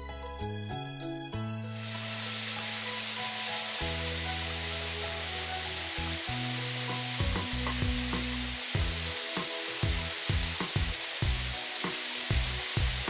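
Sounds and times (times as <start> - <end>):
water spraying from hoses: 1.8 - 13.0
background music with bass beat: 6.0 - 13.0.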